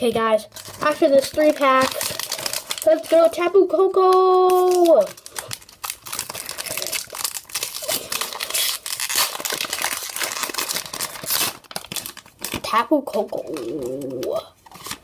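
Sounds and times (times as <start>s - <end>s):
person speaking: 0.0s - 5.3s, 12.5s - 14.6s
foil wrapper crinkling and tearing: 0.5s - 15.0s.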